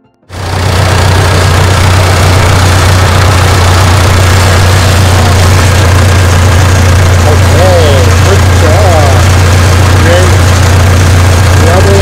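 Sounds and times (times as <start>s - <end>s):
bulldozer diesel engine running: 0.3s - 12.0s.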